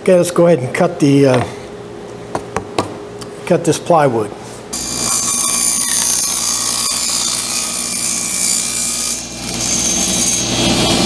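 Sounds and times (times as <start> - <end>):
table saw cutting plywood: 4.7 - 11.0.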